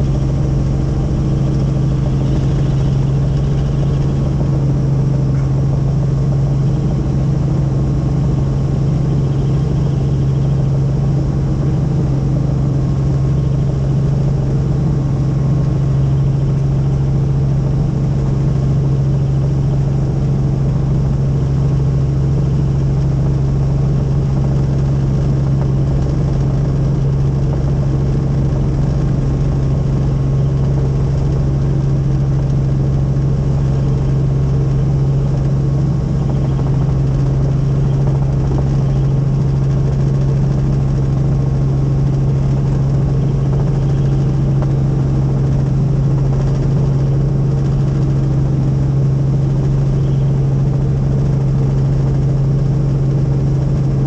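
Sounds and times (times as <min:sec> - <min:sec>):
helicopter cabin drone: 0:00.0 - 0:54.0.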